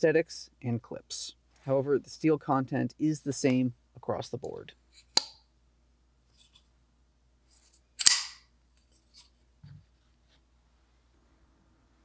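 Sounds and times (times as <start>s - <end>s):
knife blade snapping open: 8.0s - 8.4s
sharp knife click: 8.0s - 8.4s.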